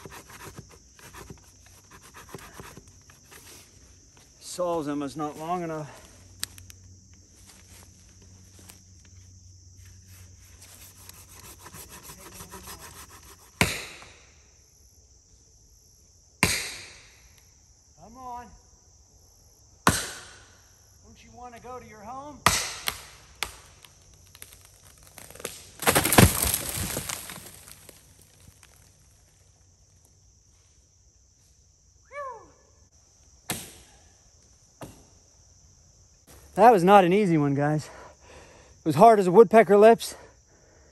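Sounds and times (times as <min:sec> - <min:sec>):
saw cutting into tree trunk: 0:00.0 - 0:03.5, 0:10.6 - 0:14.0, 0:24.9 - 0:28.0
faint insect hiss: 0:00.0 - 0:40.9
sharp cracks: 0:22.5 - 0:28.9.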